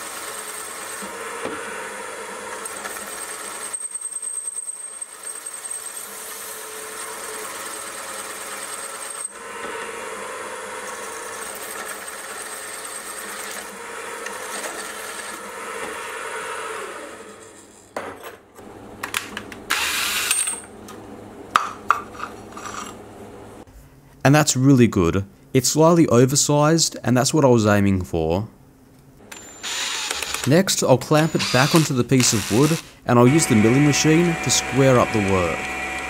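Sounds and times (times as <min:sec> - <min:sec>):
thin high whine: 0:29.3 - 0:36.0
milling machine cutting metal: 0:29.6 - 0:36.0.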